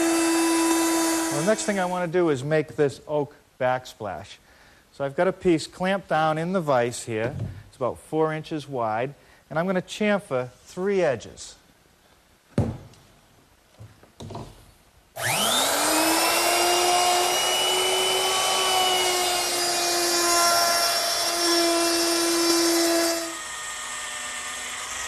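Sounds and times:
drill boring through countertop: 0.0 - 1.9, 15.2 - 25.0
electric router cutting wood: 0.0 - 1.9, 15.2 - 25.0.

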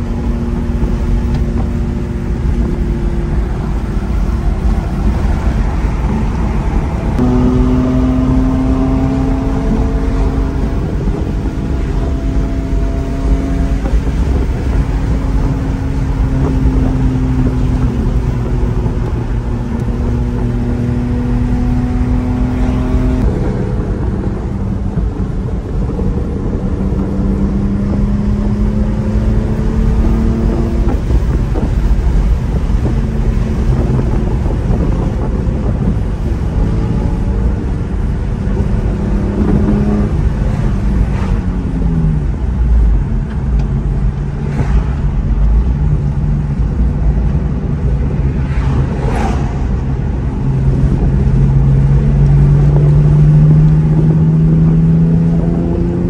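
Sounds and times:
car engine droning: 0.0 - 56.0
road and wind rumble: 0.0 - 56.0.

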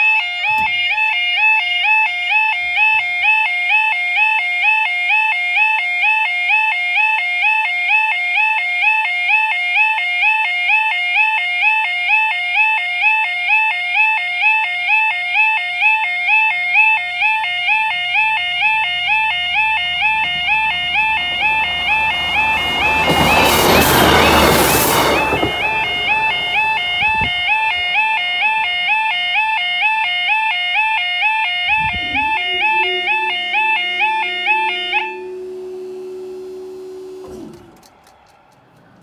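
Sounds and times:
level crossing two-tone alarm: 0.0 - 37.7
diesel train rumble: 17.0 - 28.2, 31.7 - 39.0.

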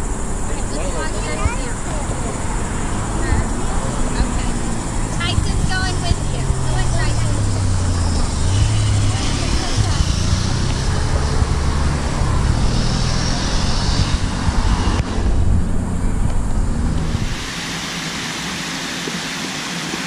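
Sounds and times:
heavy traffic rumble: 0.0 - 20.0
fountain water jets spraying: 17.2 - 20.0.

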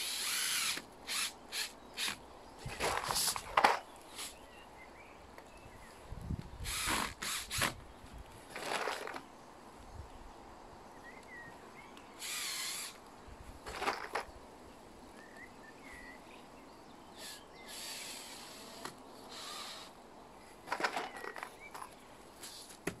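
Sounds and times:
foam strip scraping and rustling: 0.0 - 4.4, 20.6 - 22.9.

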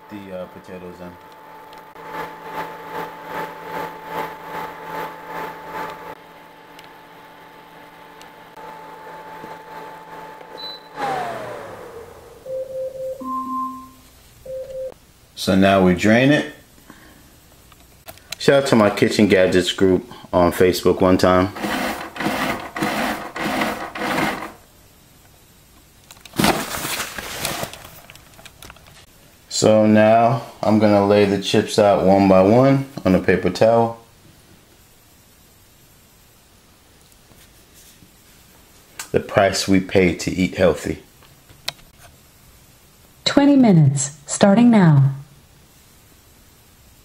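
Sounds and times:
induction cooktop whine: 0.0 - 16.3
fan hum: 0.0 - 25.4
paper towel dispenser motor: 1.2 - 12.3, 21.5 - 24.6.

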